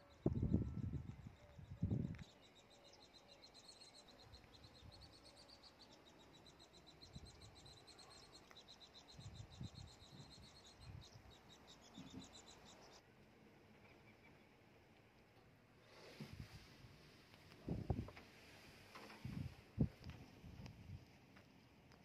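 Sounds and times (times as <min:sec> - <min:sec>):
small animal chirping: 0:00.0 - 0:13.0.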